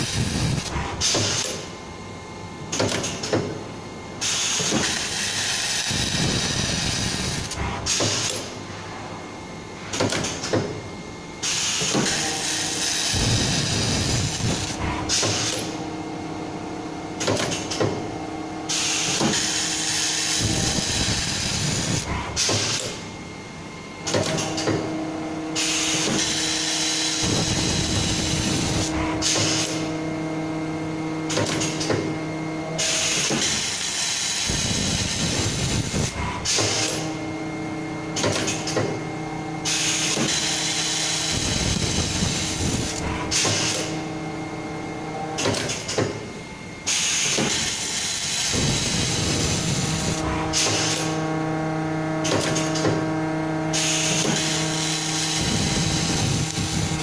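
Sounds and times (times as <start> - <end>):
welding machine hissing: 0.0 - 1.6, 4.2 - 8.5, 11.4 - 15.8, 18.7 - 23.0, 25.6 - 29.9, 32.8 - 37.2, 39.6 - 44.2, 46.9 - 51.3, 53.7 - 57.0
machine hum: 0.0 - 57.0.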